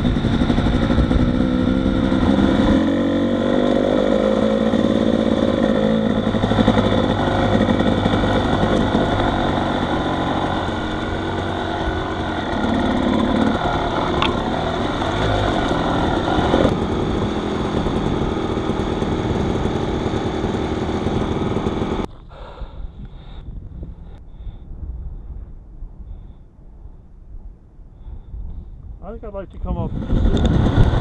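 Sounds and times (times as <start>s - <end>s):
off-road vehicle engine running: 0.0s - 24.2s, 29.0s - 31.0s
faint wind noise: 0.0s - 31.0s.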